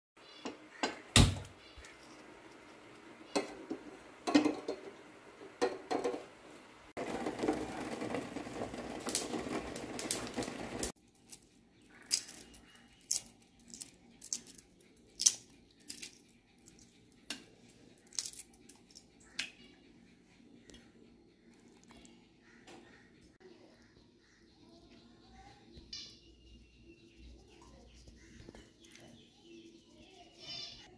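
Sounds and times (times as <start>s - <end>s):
egg shells cracking and peeling: 7.0s - 19.6s.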